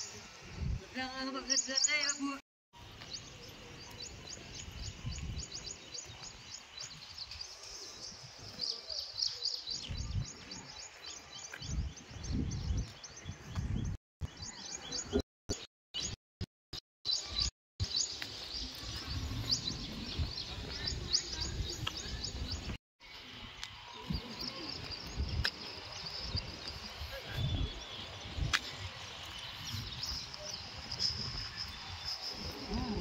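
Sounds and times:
wind rumble on microphone: 0.4s - 1.0s, 4.4s - 7.4s, 9.8s - 10.8s, 11.6s - 14.4s, 17.8s - 22.8s, 24.0s - 33.0s
small birds chirping: 1.2s - 16.2s, 17.1s - 22.8s, 23.6s - 33.0s.

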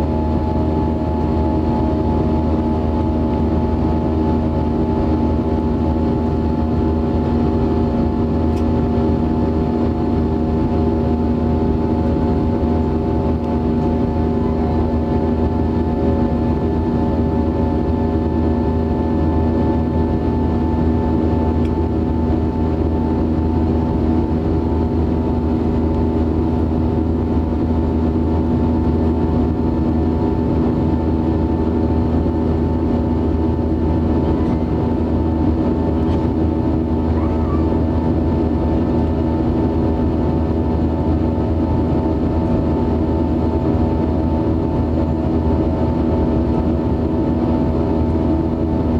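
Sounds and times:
jet engine drone in cabin: 0.0s - 48.9s.

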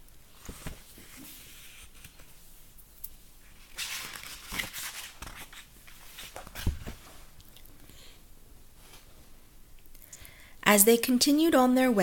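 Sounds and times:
book pages rustling: 0.4s - 2.4s, 3.6s - 7.4s.

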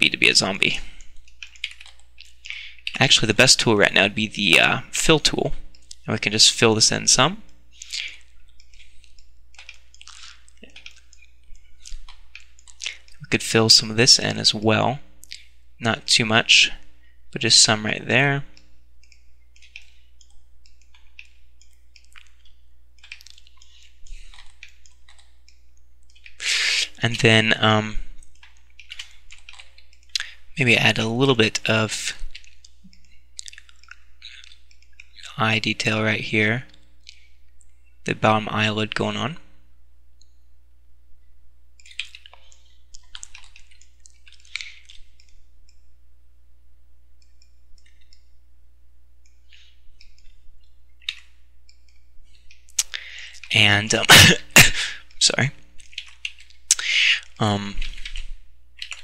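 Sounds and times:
low electrical hum: 0.0s - 59.0s
scratching and clicking of computer mouse: 7.5s - 13.2s, 18.5s - 27.0s, 28.2s - 30.2s, 32.2s - 35.3s, 49.2s - 53.6s.

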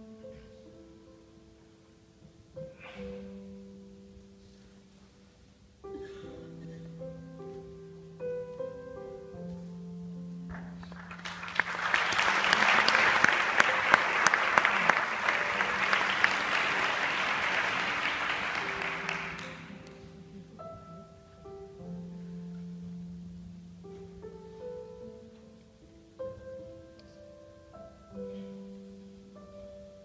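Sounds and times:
audience applause: 10.6s - 20.1s.

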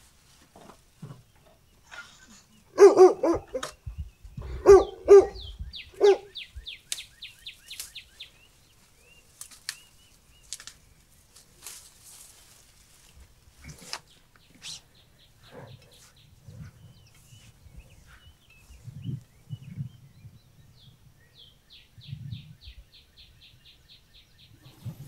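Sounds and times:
dog barking: 2.8s - 3.8s, 4.6s - 6.4s
small bird chirping: 3.3s - 11.0s.

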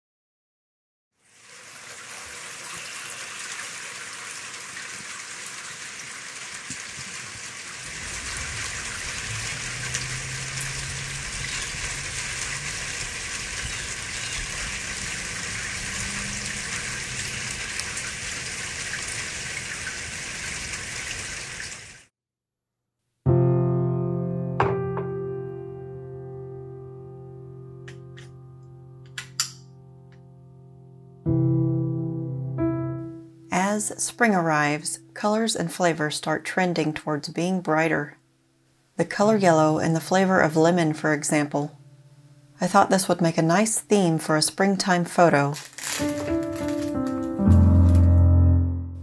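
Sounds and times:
water trickling down rain chain: 1.2s - 22.0s, 45.4s - 48.0s
steady rain: 1.8s - 22.1s, 45.6s - 48.1s.

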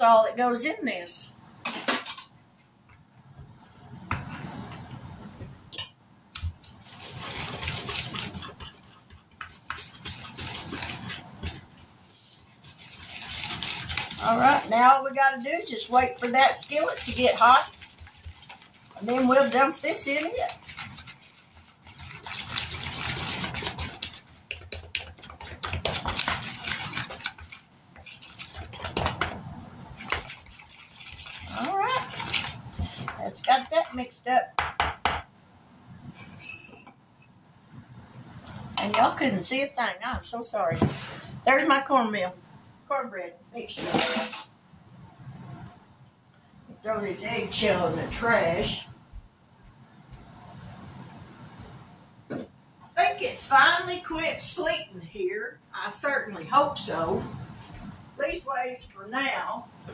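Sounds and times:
wooden spoon stirring in plastic bowl: 6.4s - 35.1s, 38.8s - 41.9s, 46.9s - 48.8s, 53.0s - 54.9s.

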